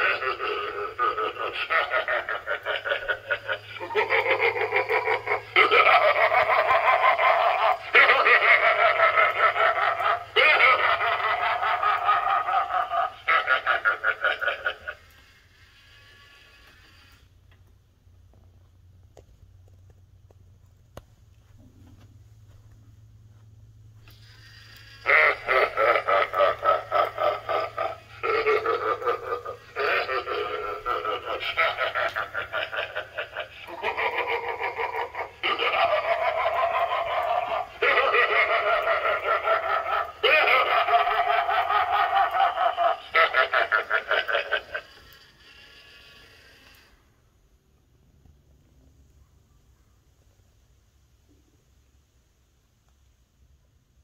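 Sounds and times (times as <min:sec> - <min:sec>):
animatronic clown laughing: 0:00.0 - 0:17.2, 0:24.0 - 0:47.0
rapidly pulsing voice-like sound: 0:25.0 - 0:41.8.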